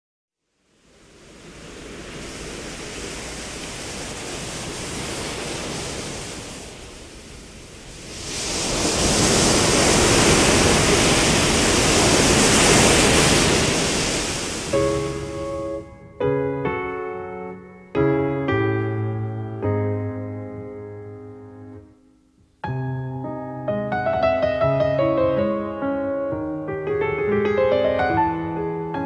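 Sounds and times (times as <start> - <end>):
ocean surf washing in: 0.5 - 17.5.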